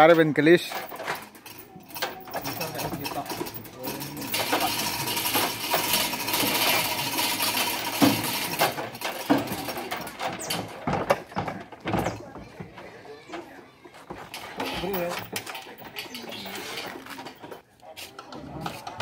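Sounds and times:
metal chain rattling: 0.0 - 17.6
wooden knocks: 9.2 - 15.8.

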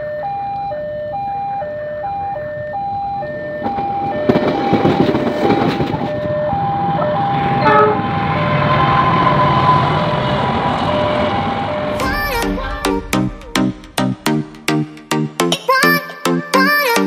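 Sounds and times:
level-crossing alarm two tones: 0.0 - 15.5
electric train rolling past: 2.1 - 15.1
wheels clicking over rail joints: 3.5 - 8.1.

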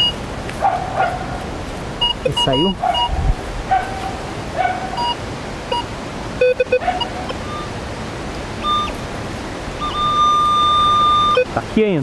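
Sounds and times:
metal detector beeps: 2.0 - 3.2, 5.0 - 7.8, 8.6 - 9.0, 9.8 - 11.6.

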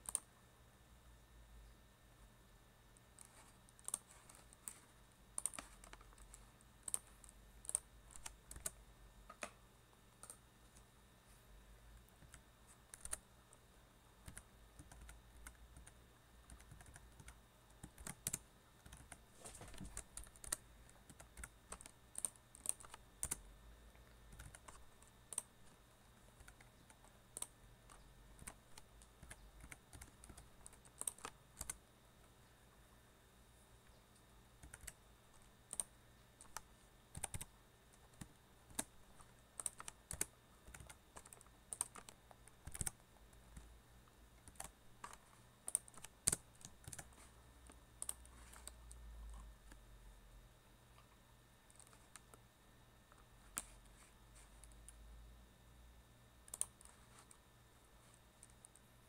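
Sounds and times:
keyboard typing clicks: 0.0 - 0.3, 3.0 - 9.6, 10.2 - 10.8, 12.1 - 13.3, 14.2 - 23.4, 24.3 - 25.6, 26.3 - 31.8, 34.1 - 43.7, 44.4 - 49.8, 56.5 - 57.4.

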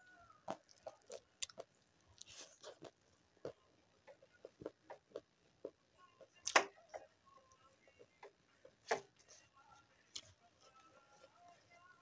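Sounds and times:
wet chewing and lip smacks: 0.4 - 3.6.

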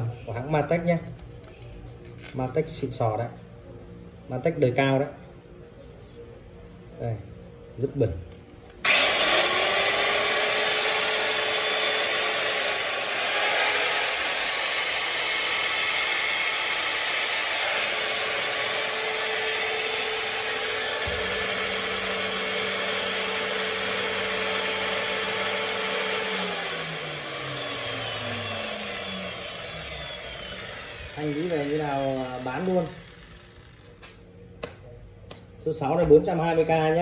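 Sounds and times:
tile cutter motor whine: 8.8 - 34.2.

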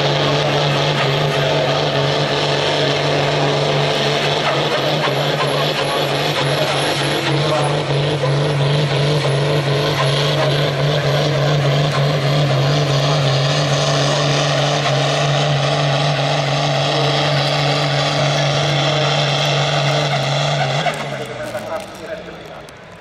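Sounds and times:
tractor diesel engine at full load: 0.0 - 23.0.

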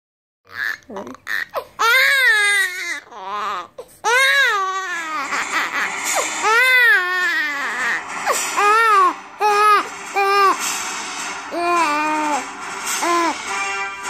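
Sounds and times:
infant crying: 0.5 - 10.6.

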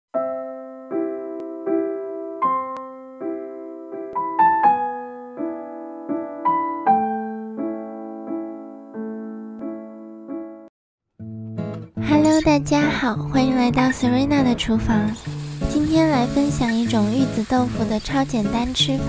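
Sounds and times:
slow gentle piano music: 0.1 - 10.7, 11.5 - 19.0.

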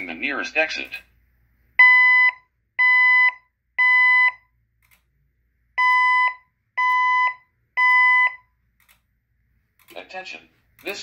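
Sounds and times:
fire alarm beeps: 1.8 - 4.5, 5.8 - 8.6.

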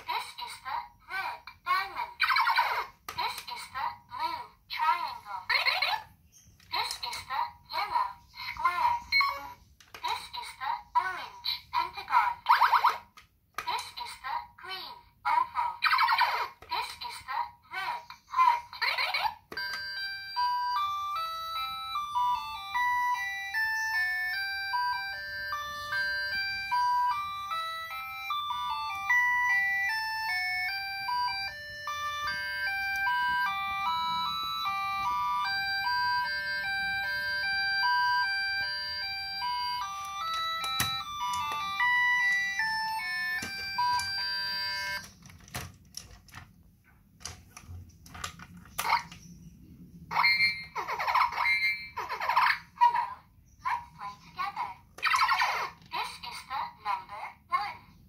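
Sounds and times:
toy beeping tune: 2.0 - 4.1, 5.1 - 14.2, 15.8 - 17.2, 18.1 - 45.2, 50.1 - 52.8, 55.0 - 55.8
plastic clicks: 40.0 - 42.5, 45.0 - 49.3.

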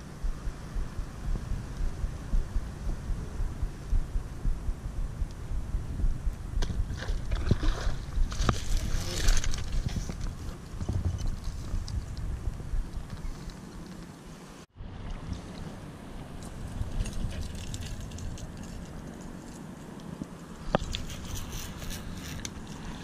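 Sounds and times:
wind buffeting microphone: 0.0 - 14.1, 14.7 - 23.0.

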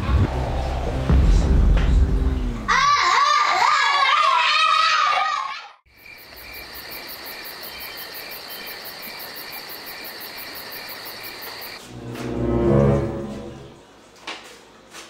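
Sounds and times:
music: 0.0 - 2.7, 11.8 - 13.9
crickets chirping: 5.9 - 11.8.

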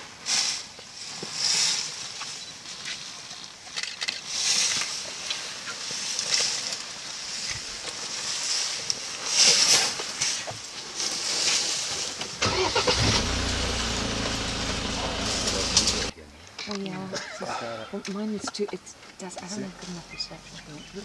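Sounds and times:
rustling and crackling in brush: 0.1 - 12.4
truck engine starting and idling: 12.4 - 16.1.

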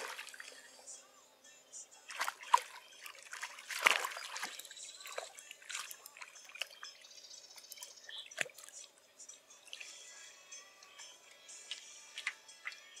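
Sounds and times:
water splashing and dripping: 0.0 - 0.6, 2.1 - 7.0, 7.6 - 8.9, 9.7 - 10.0, 11.7 - 13.0.

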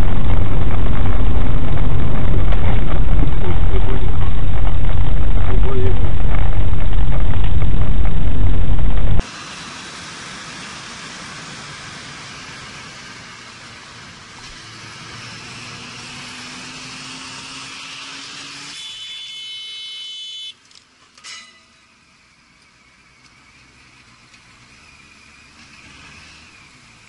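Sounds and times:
wind rush and road noise: 0.0 - 16.8
shrill tone: 18.8 - 20.6.

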